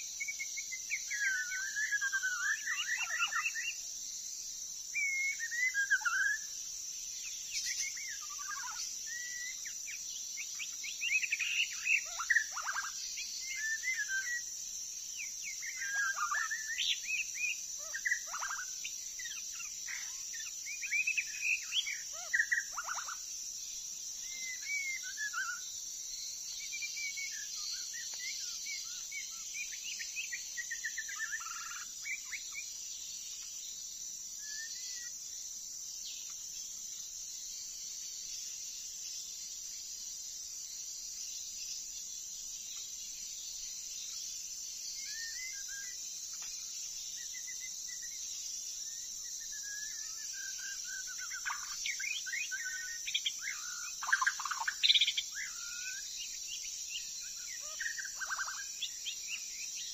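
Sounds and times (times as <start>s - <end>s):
insects droning: 0.0s - 59.9s
bird singing whistled phrases: 5.0s - 6.4s, 7.6s - 9.6s.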